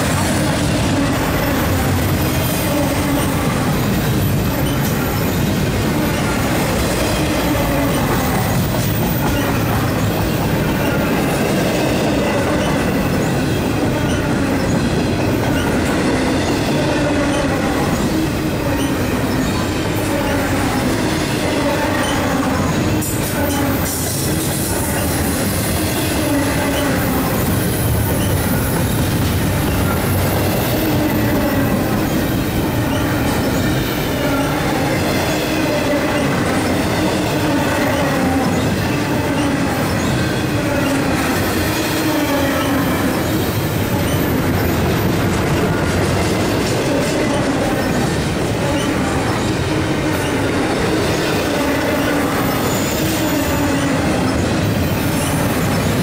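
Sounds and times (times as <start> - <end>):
train wheels rumbling on rails: 0.0 - 56.0.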